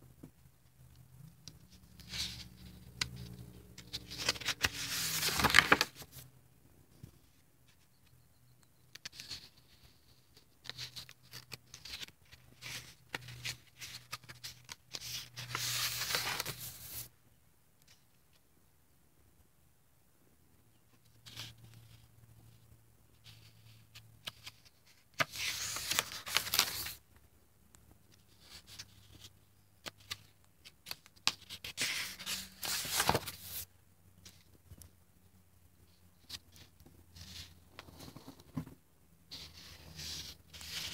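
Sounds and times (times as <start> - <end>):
paper pages rustling: 1.8 - 6.2, 10.6 - 17.1, 23.4 - 27.0, 29.8 - 34.5, 39.3 - 40.9
page turning: 2.0 - 6.2, 10.6 - 17.1, 24.2 - 27.0, 29.8 - 33.6, 39.3 - 40.9.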